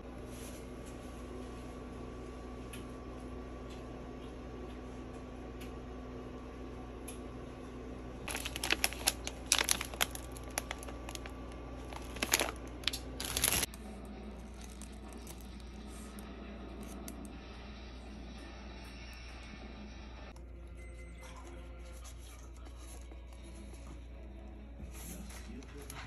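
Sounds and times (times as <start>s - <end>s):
steady hum: 0.0s - 26.0s
plastic packaging crinkling: 8.2s - 13.7s.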